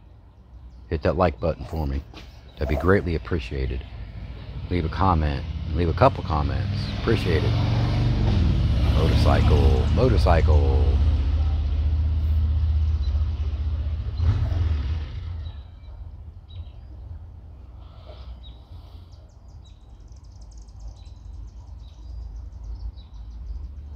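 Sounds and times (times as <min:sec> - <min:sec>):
birds chirping: 0:00.0 - 0:08.0, 0:08.8 - 0:11.0, 0:12.8 - 0:23.9
motorcycle engine passing: 0:02.6 - 0:16.0.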